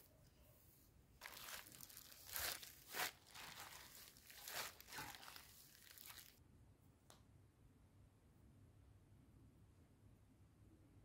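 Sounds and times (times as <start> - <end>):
plastic bag crinkling: 1.2 - 6.4.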